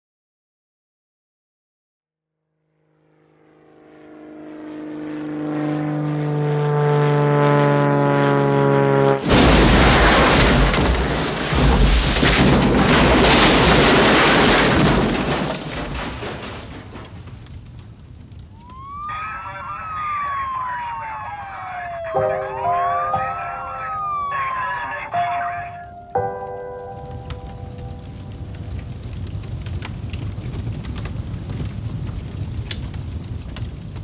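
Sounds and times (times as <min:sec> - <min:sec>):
airplane engine drone: 0:02.6 - 0:09.4
loud crash and explosion: 0:09.2 - 0:17.4.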